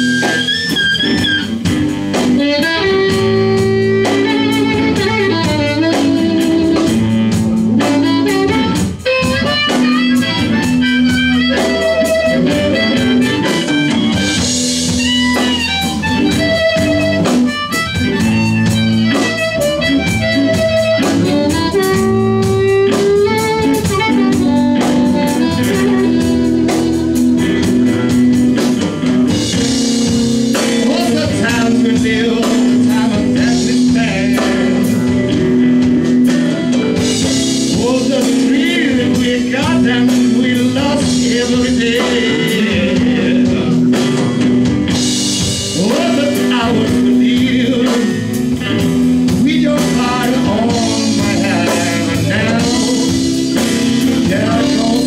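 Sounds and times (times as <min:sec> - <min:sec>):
amplified harmonica bent notes: 0:00.0 - 0:37.7
drum kit with cymbals: 0:00.0 - 0:55.0
electric guitars: 0:00.0 - 0:55.0.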